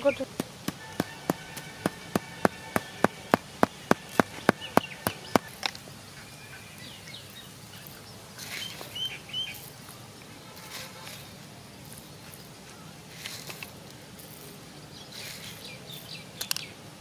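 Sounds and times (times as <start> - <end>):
pestle pounding in stone mortar: 0.3 - 5.6.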